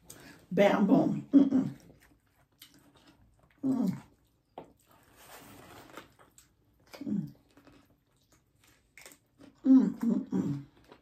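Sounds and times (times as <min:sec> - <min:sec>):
soft rustle: 0:04.8 - 0:06.2.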